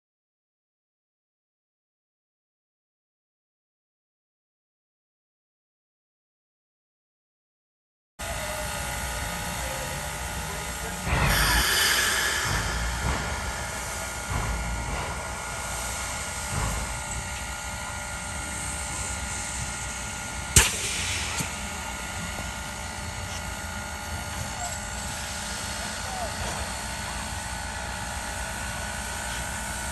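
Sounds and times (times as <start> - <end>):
steam locomotive chuffing: 8.2 - 29.9.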